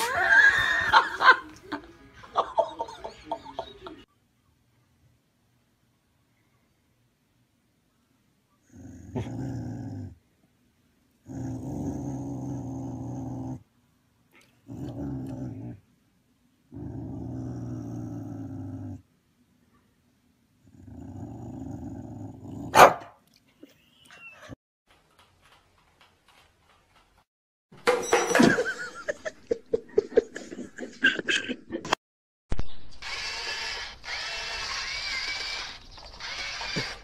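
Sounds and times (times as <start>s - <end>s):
dog growling: 8.6s - 10.2s, 11.2s - 13.6s, 14.4s - 15.8s, 16.7s - 19.0s, 20.6s - 22.7s.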